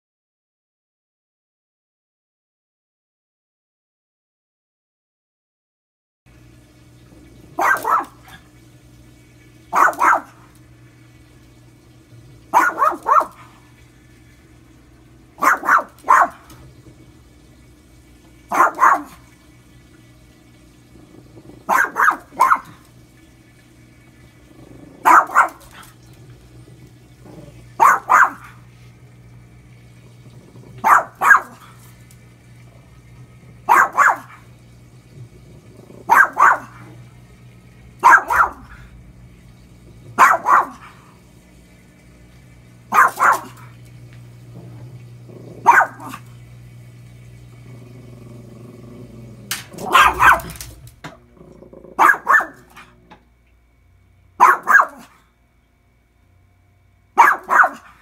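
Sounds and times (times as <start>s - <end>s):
washing machine humming: 6.3s - 58.0s
small dog barking: 7.5s - 8.5s, 9.7s - 10.5s, 12.5s - 13.6s, 15.4s - 16.6s, 18.5s - 19.3s, 21.6s - 22.9s, 25.0s - 26.0s, 27.4s - 28.6s, 30.7s - 31.8s, 33.6s - 34.5s, 36.0s - 37.0s, 38.0s - 38.9s, 40.1s - 41.0s, 42.9s - 43.8s, 45.6s - 46.3s, 49.7s - 50.9s, 51.9s - 53.0s, 54.4s - 55.2s, 57.2s - 58.0s.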